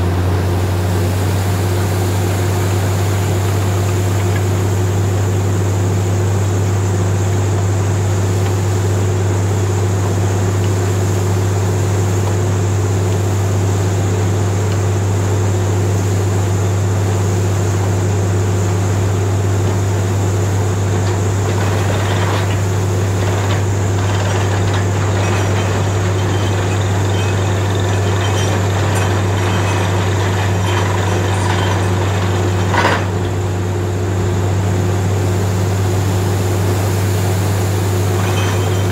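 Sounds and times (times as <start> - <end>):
drilling rig engine drone: 19.6 - 38.9
high machine whine: 19.7 - 38.9.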